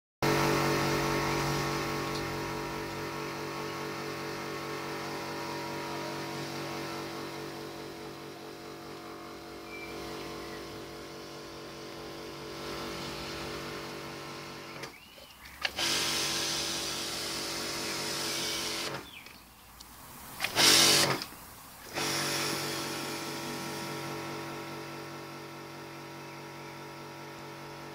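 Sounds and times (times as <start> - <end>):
pressure washer motor humming: 0.2 - 19.3, 20.4 - 27.9
motor restart click: 0.3 - 6.6, 12.4 - 15.0, 15.6 - 19.4, 20.4 - 21.3.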